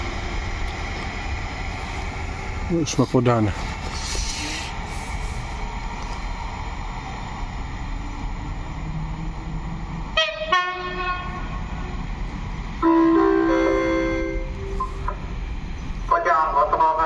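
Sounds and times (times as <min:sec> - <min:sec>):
steady low rumble: 0:00.0 - 0:10.2
multi-tone horn blast: 0:10.2 - 0:11.5
railway horn blasts: 0:10.2 - 0:11.8, 0:12.8 - 0:14.8.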